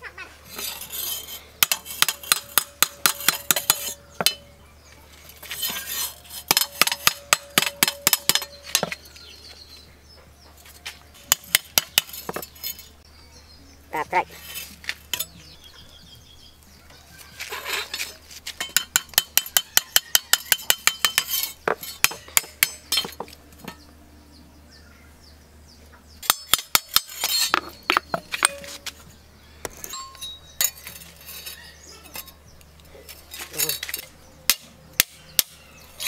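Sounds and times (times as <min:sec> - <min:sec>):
hammer striking steel blade: 0:01.6 - 0:04.6, 0:05.6 - 0:09.0, 0:18.6 - 0:23.8.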